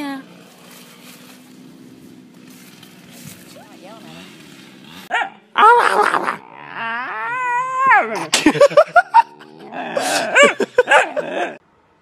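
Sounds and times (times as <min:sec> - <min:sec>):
puppy howling and yipping: 0:05.1 - 0:08.3.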